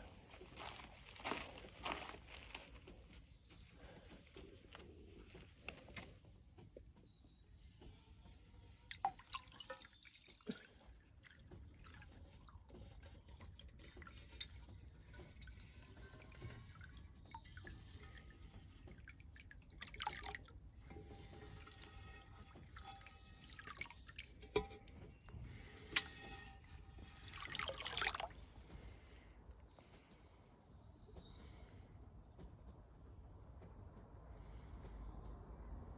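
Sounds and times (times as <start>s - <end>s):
water dripping and splashing: 8.8s - 29.1s.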